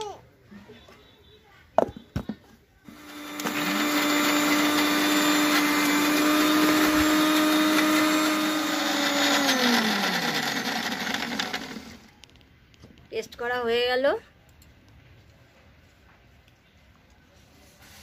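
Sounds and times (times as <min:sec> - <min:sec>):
electric mixer grinder whining: 0:02.9 - 0:12.1.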